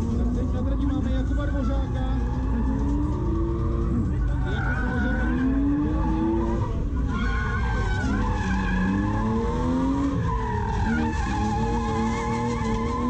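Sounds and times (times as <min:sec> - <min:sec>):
car engine revving: 0:00.0 - 0:13.0
tyres squealing: 0:00.8 - 0:13.0.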